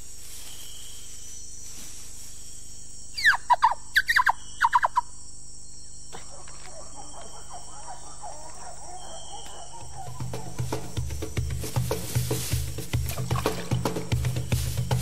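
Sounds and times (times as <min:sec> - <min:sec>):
person imitating monkey squeals: 0:03.2 - 0:05.0.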